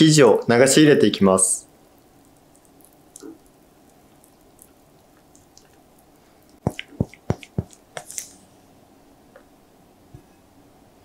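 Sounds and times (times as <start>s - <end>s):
batter dripping with wet plops: 1.7s - 8.4s.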